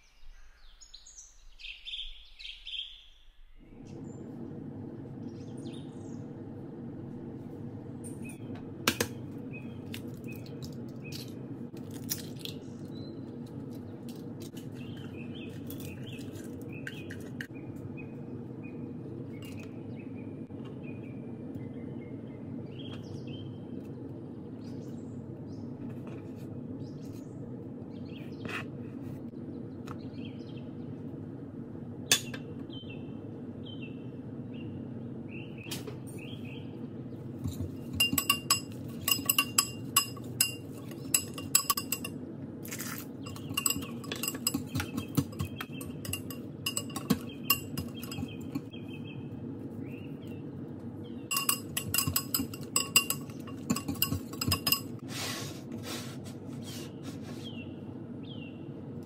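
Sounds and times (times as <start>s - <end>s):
steady low hum: 3.4s - 59.0s
metal utensil clinking glass bowl: 37.4s - 42.1s, 43.2s - 48.7s, 51.3s - 55.0s.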